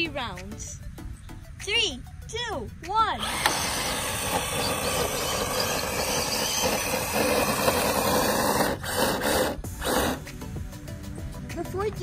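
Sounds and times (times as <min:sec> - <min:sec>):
rc car motors whirring: 0:03.2 - 0:10.3.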